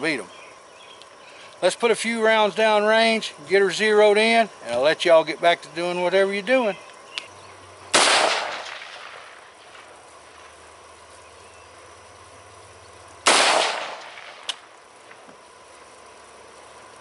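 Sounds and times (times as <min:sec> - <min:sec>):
rifle shots echoing: 0:07.9 - 0:09.8, 0:13.2 - 0:14.6.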